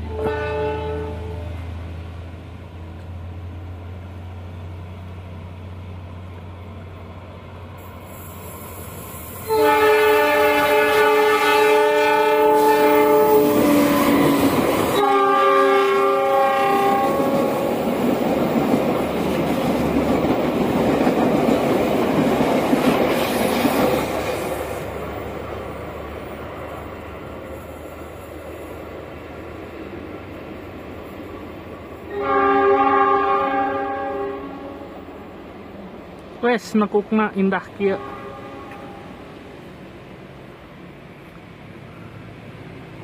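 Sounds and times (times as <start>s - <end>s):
locomotive horn blast: 0.0s - 1.7s, 9.4s - 17.7s, 32.1s - 35.0s, 37.9s - 39.2s
train coaches clattering on rails: 9.8s - 27.2s.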